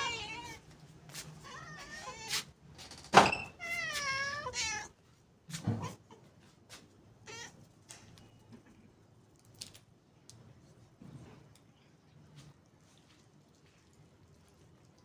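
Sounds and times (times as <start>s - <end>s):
cat meowing: 0.0s - 0.6s, 1.4s - 2.4s, 3.5s - 5.0s, 7.2s - 7.6s.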